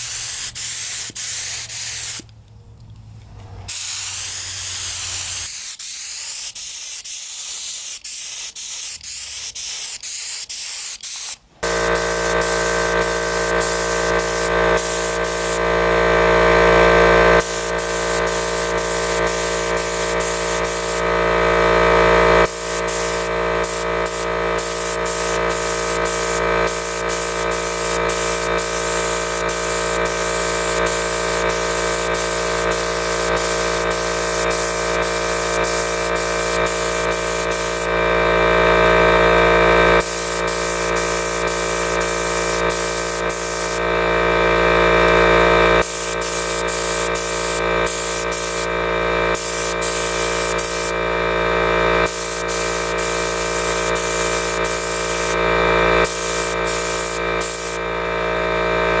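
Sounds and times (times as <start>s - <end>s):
hiss of spraying paint: 0.0s - 2.2s, 3.7s - 15.6s, 17.4s - 21.0s, 22.4s - 37.9s, 40.0s - 43.8s, 45.8s - 48.7s, 49.3s - 51.0s, 52.0s - 55.4s, 56.0s - 57.8s
spray gun motor whine: 10.8s - 59.0s.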